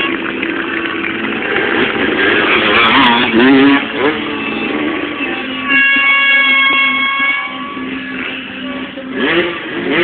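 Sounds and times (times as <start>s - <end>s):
motorcycle engine running: 0.0s - 10.0s
horn blast: 2.4s - 10.0s.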